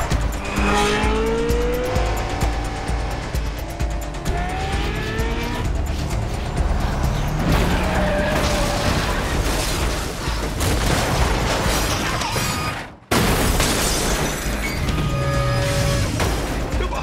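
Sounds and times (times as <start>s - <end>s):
vehicle noise: 0.0s - 10.6s
film music score: 0.0s - 13.1s.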